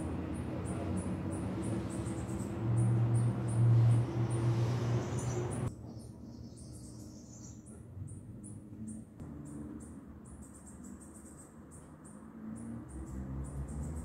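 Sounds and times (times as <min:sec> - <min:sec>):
insect chirping: 0:00.3 - 0:05.7.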